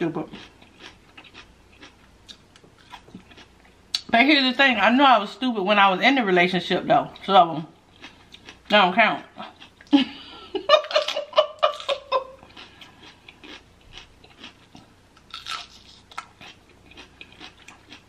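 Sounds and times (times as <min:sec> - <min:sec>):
biting and chewing food: 0:00.2 - 0:03.8, 0:10.8 - 0:18.0.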